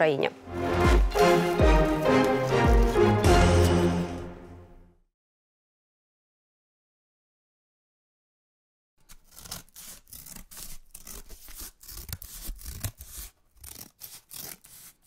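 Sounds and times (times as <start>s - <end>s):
scratchy rustling: 1.2s - 3.7s, 9.0s - 15.0s.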